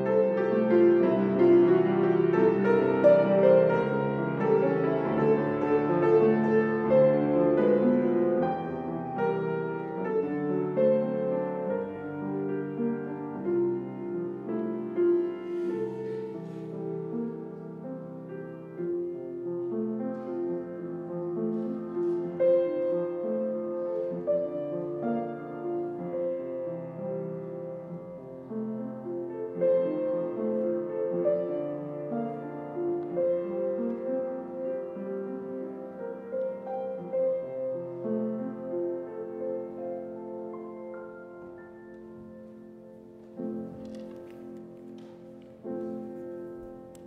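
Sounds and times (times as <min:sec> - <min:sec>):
slow piano piece: 0:00.0 - 0:47.0.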